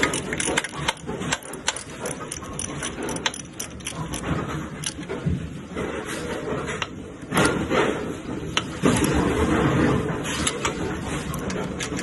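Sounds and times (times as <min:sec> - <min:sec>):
metallic clicks of hand tools: 0:00.0 - 0:05.2.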